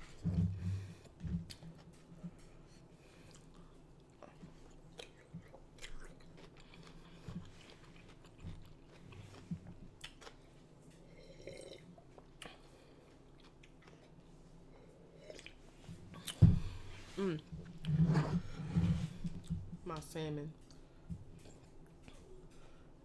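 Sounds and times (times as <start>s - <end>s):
close-miked chewing: 3.1s - 10.6s, 11.4s - 14.4s.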